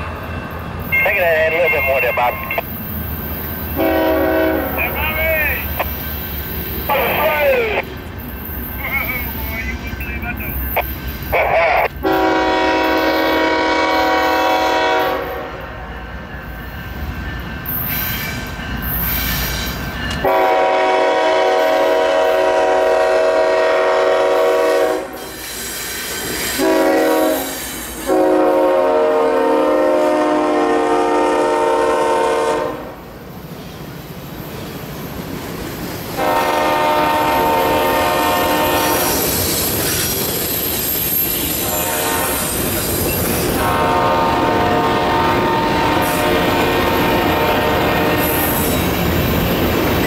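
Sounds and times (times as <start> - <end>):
train cars rolling: 0.0 - 50.0
locomotive air horn blasts: 3.8 - 5.0, 12.0 - 15.7, 20.2 - 25.2, 26.6 - 33.0, 36.2 - 39.2, 41.7 - 42.6, 43.5 - 48.7.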